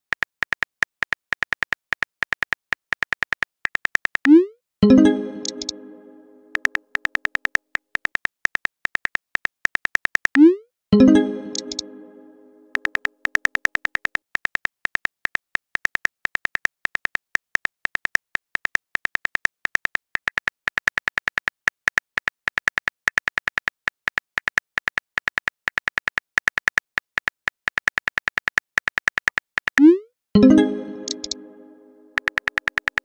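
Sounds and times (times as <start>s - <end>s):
phone keyboard key clicks: 0.0s - 4.3s, 6.6s - 10.4s, 12.7s - 29.8s, 32.2s - 33.0s.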